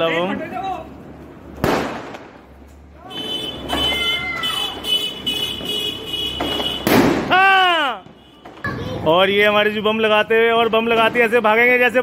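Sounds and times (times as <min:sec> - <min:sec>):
sharp crack: 0:01.5 - 0:02.8, 0:06.3 - 0:08.2
firecracker bang: 0:01.6 - 0:02.6, 0:05.5 - 0:09.0.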